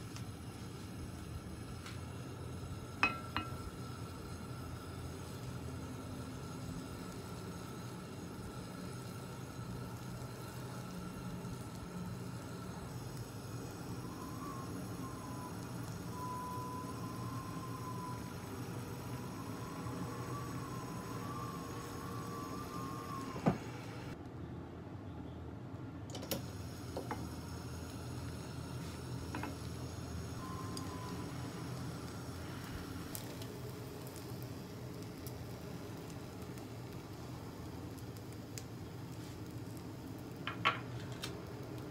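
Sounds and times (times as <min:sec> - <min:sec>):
butter sizzling in a pan: 0:00.0 - 0:24.0, 0:26.5 - 0:41.9.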